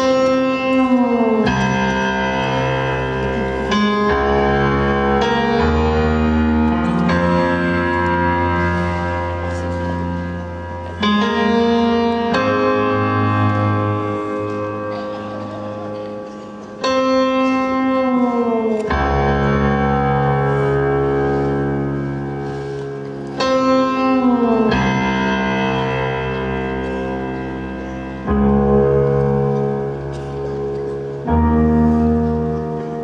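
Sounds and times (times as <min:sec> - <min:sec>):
slow instrumental music of held chords: 0:00.0 - 0:33.0.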